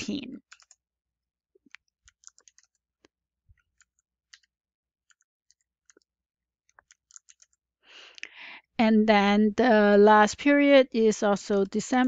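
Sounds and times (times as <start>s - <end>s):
computer keys clicking: 0.5s - 0.8s, 1.7s - 2.8s, 3.6s - 4.5s, 5.1s - 6.1s, 6.7s - 7.6s.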